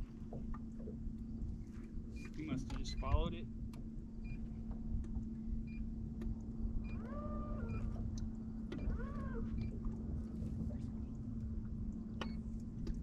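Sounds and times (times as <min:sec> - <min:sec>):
electric motor humming: 0:06.2 - 0:09.7.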